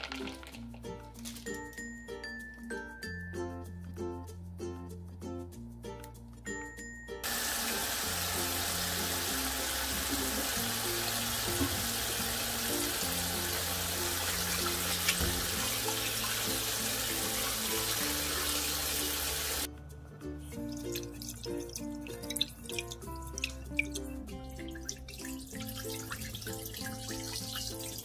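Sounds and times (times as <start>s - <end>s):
background music: 0.0s - 28.0s
tap water running into colander: 7.2s - 19.7s, 20.7s - 28.0s.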